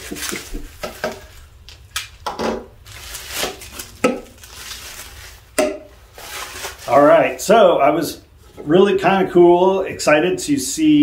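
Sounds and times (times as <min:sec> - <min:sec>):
bubble wrap rustling and crinkling: 0:00.0 - 0:07.5.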